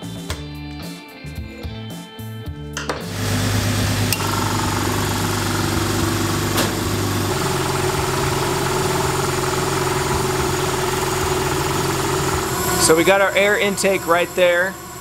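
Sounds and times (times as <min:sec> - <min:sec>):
compressor running: 0:02.8 - 0:15.0
car engine idling: 0:03.2 - 0:15.0.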